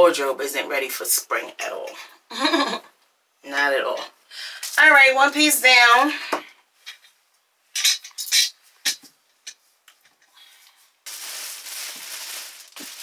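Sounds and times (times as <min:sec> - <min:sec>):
plastic packaging crinkling: 0:11.0 - 0:13.0.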